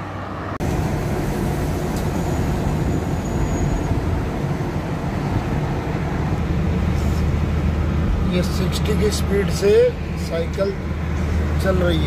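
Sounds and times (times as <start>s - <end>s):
car engine and road rumble: 0.0s - 12.0s
road traffic: 0.0s - 12.0s.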